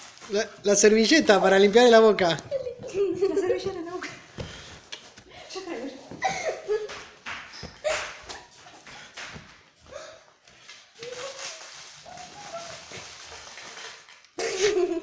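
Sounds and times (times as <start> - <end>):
rustling and handling noises: 0.0 - 15.0
stifled laughter: 14.4 - 15.0.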